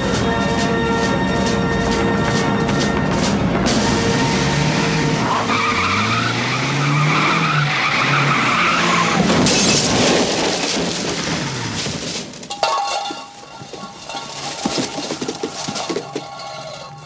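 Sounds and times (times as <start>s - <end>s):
tyres squealing: 0.0s - 10.0s, 12.5s - 17.0s
car engine revving: 3.2s - 9.4s
car crash: 3.6s - 17.0s
glass breaking: 9.2s - 17.0s.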